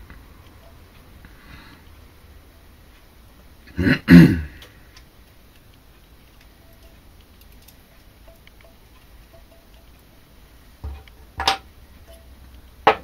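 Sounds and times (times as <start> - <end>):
man coughing: 3.8 - 4.6.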